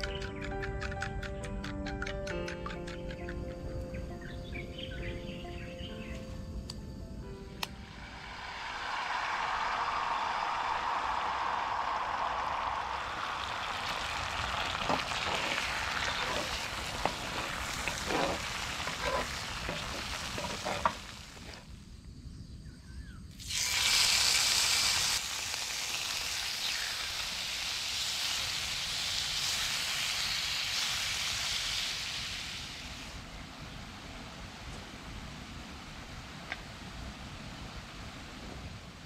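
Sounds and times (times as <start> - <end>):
eggs sizzling in oil: 7.8 - 21.6, 23.4 - 33.3
meat frying in pan: 8.1 - 21.6, 23.4 - 33.2
utensil knocking on skillet: 14.8 - 21.1.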